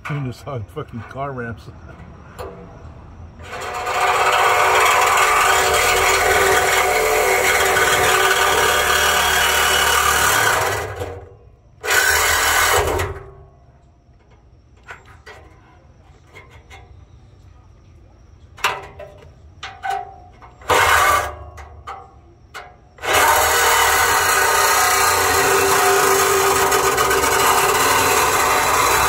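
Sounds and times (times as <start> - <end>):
power saw cutting metal pipe: 3.4 - 13.3, 20.6 - 21.4, 23.0 - 29.0.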